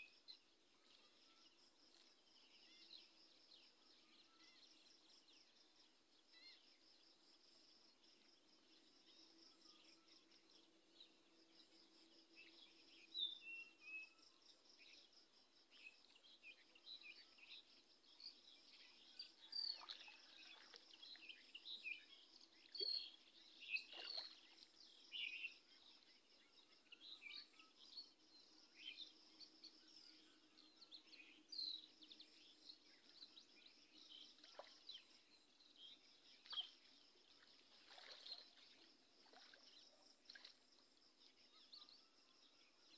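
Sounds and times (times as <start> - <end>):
water splashes from wading: 19.7 - 21.3, 23.8 - 24.7, 34.4 - 35.0, 36.3 - 40.8
small birds chirping: 30.8 - 40.6.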